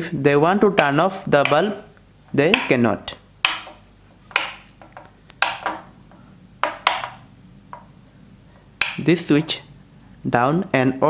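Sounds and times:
plastic wall switches clicking: 3.4s - 5.8s, 6.6s - 7.2s, 8.8s - 9.1s.

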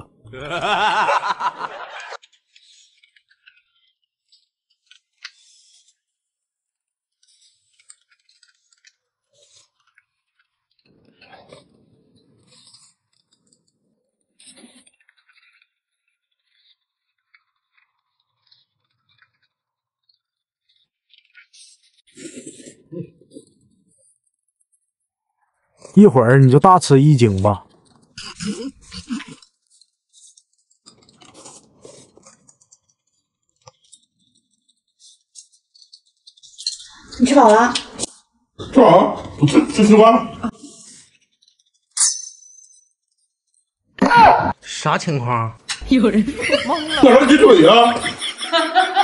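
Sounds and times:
chewing and slurping noodles: 7.2s - 24.2s, 27.7s - 37.2s.

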